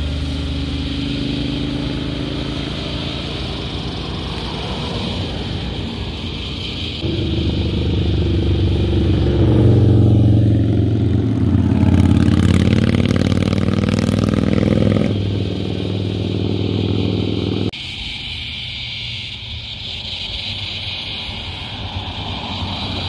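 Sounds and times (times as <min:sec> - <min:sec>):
motorcycle riding past: 0:00.0 - 0:17.7.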